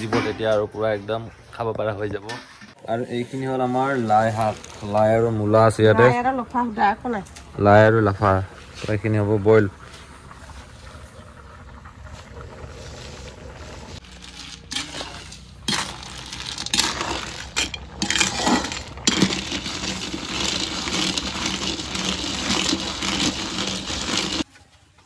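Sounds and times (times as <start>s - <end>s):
snail shells clinking in wok: 14.0s - 24.4s.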